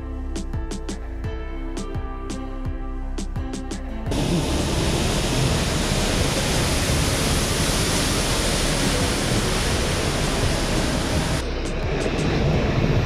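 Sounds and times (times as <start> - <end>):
waterfall rushing: 4.1 - 11.4.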